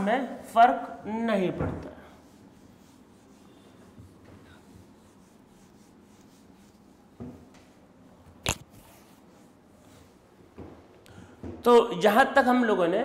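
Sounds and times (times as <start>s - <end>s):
duster rubbing whiteboard: 2.0s - 7.9s.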